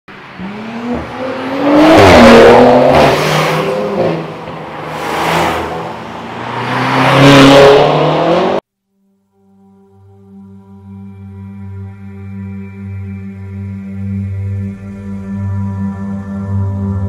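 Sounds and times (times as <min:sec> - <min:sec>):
cars accelerating past: 0:00.1 - 0:08.6.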